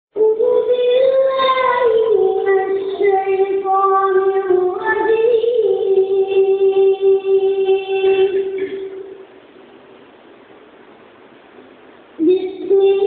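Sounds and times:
child singing long notes: 0.2 - 8.9.

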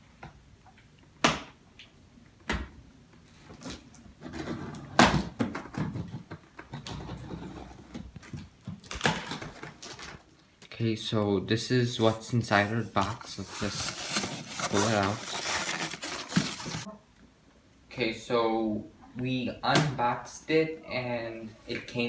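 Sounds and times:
cardboard flaps rustling: 13.0 - 16.9.

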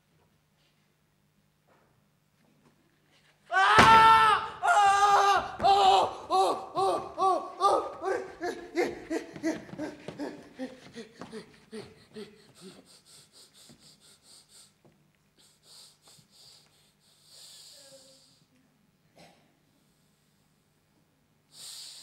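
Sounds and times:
person laughing slowly: 4.4 - 12.9
wheezy breathy gasps: 10.2 - 14.8.

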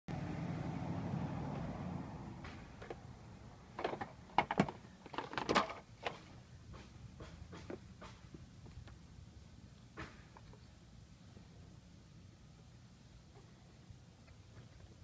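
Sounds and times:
low steady hum: 7.8 - 15.0.

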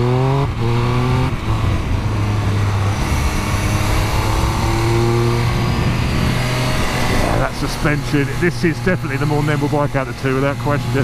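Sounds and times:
motorcycle engine revving: 0.0 - 11.0
wind on microphone: 0.5 - 7.6.

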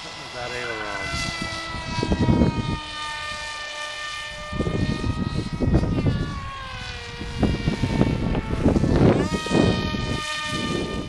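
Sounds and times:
model plane motor whining: 0.0 - 11.0
wind rumble on microphone: 0.3 - 11.0.

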